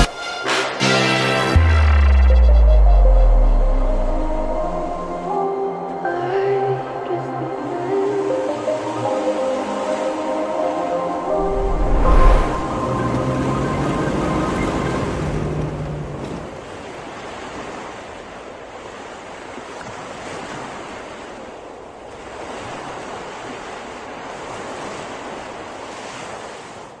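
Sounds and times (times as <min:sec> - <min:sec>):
music track: 0:00.0 - 0:14.8
ocean surf rushing: 0:06.9 - 0:19.5.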